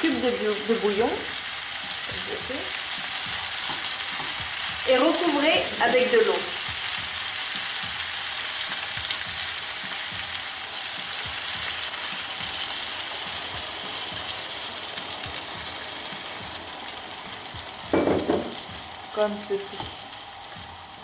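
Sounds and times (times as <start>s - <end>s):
vegetables sizzling in frying pan: 0.0s - 21.0s.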